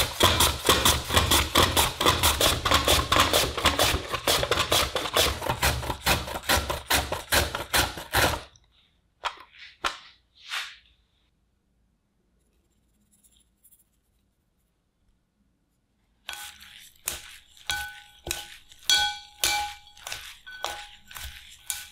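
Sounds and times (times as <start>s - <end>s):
potato rasping on mandoline blade: 0.0s - 8.5s, 16.3s - 21.9s
salt sprinkling patter: 16.3s - 21.9s.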